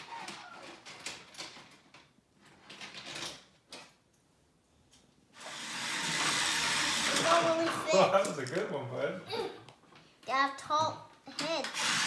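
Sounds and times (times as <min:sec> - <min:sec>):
plastic toy parts clicking and rattling: 0:00.0 - 0:04.0.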